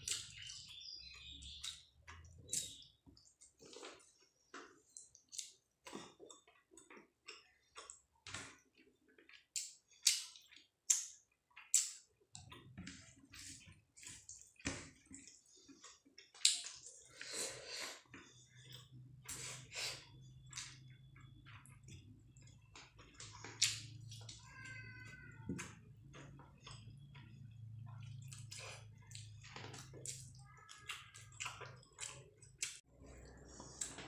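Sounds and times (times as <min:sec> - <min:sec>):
wet chewing and lip-smacking: 0:26.4 - 0:34.0.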